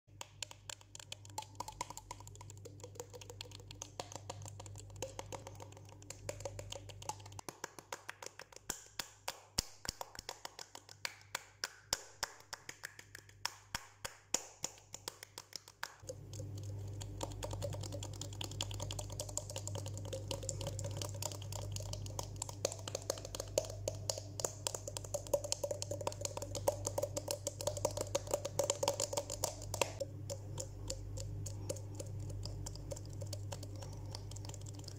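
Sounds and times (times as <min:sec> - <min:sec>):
fingers tapping on face and mouth: 0:00.1 - 0:34.9
steady low hum: 0:16.0 - 0:34.9.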